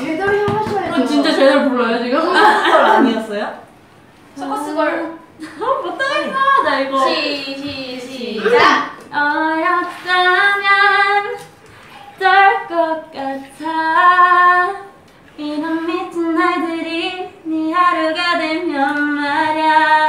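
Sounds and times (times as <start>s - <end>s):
woman singing unaccompanied: 5.9s - 20.0s.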